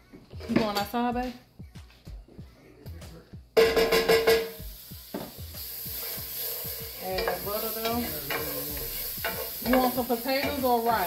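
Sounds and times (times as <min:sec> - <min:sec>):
butter sizzling in skillet: 0:03.9 - 0:11.0
wooden spoon stirring in pan: 0:05.9 - 0:11.0.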